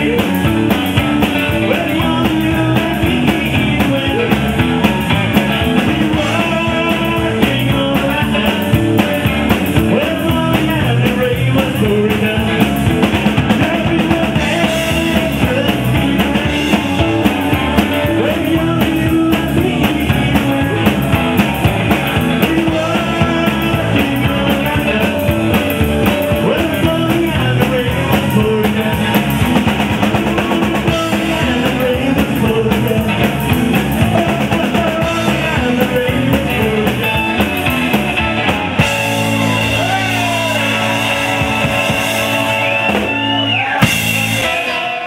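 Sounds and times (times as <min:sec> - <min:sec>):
drum beat: 0:00.0 - 0:44.7
electric guitar bending notes: 0:00.0 - 0:45.0
live rock band playing: 0:00.0 - 0:45.0.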